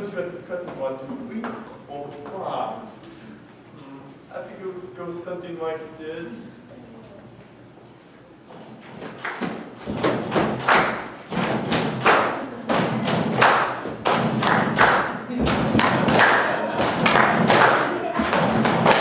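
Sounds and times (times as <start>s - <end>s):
heavy thumping percussion: 9.5s - 16.2s, 16.8s - 19.0s.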